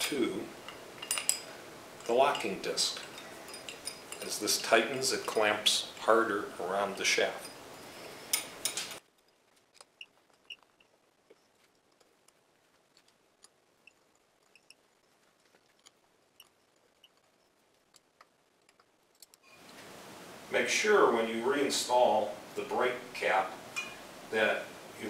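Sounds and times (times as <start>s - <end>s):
faint metal clicks: 0.0s - 6.1s, 7.0s - 19.9s
light squeaks: 6.9s - 19.8s.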